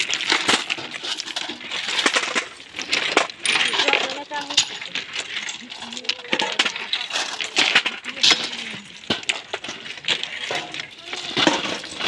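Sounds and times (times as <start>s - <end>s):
stone ballast clattering: 0.0s - 12.0s.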